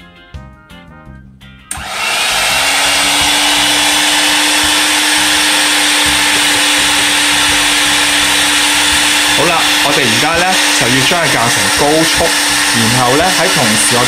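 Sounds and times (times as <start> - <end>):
electric hand mixer whipping: 1.7 - 14.0.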